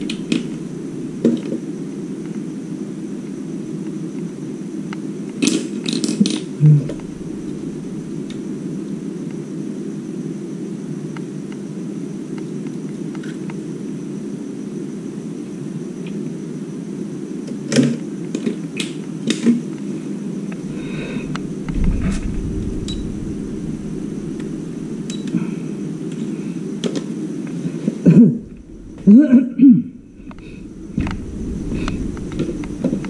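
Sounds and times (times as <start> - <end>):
low handling rumble: 0.0 - 1.2, 6.8 - 9.1, 20.5 - 26.0, 28.2 - 33.0
cooling fans humming: 0.0 - 3.8, 6.5 - 9.3, 20.2 - 33.0.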